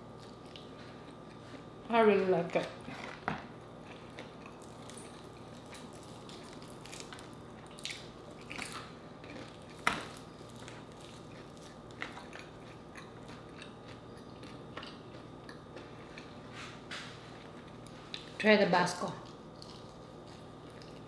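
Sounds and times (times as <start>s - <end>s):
crunching fried chicken: 3.8s - 16.5s, 19.2s - 21.0s.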